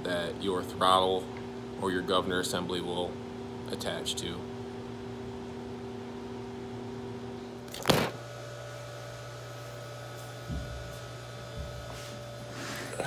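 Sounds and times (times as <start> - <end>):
electrical hum: 0.0 - 13.0
camera falling and knocking: 7.7 - 8.2.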